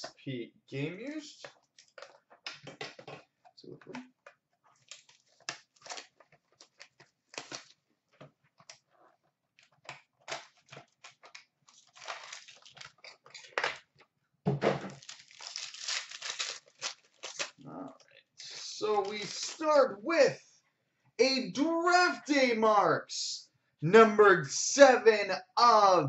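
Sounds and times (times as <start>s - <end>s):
box crinkles and clicks: 4.8s - 7.8s, 9.6s - 13.9s
card pack wrapper tearing: 10.3s - 13.8s, 14.9s - 17.6s, 18.4s - 19.6s.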